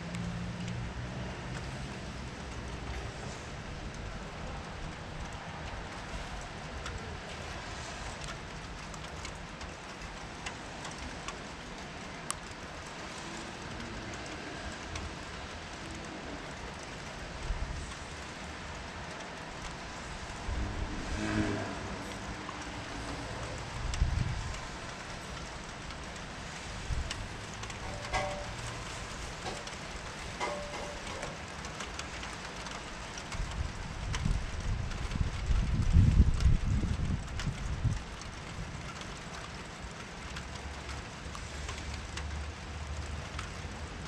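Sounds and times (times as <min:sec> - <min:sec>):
steady rain falling: 0:00.0 - 0:44.0
drops ticking on surfaces: 0:22.1 - 0:34.6.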